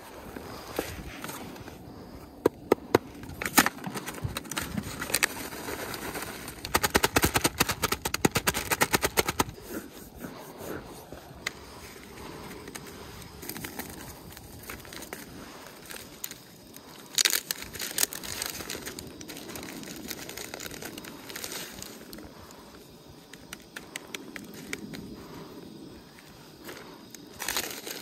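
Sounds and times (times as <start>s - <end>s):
plastic bag crinkling: 13.4s - 22.0s.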